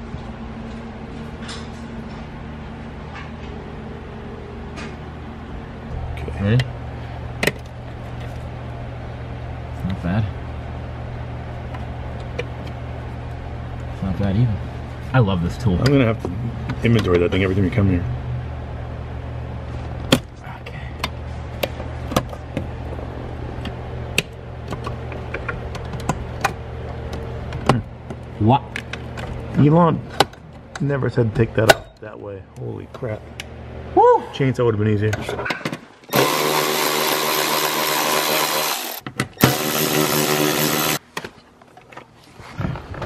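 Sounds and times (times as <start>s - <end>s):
steady low hum: 0.0s - 43.0s
cordless ratchet motor whining: 36.1s - 41.0s.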